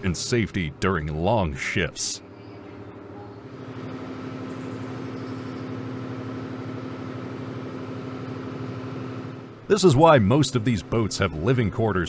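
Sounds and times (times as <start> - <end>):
diesel machinery droning: 0.0 - 12.0.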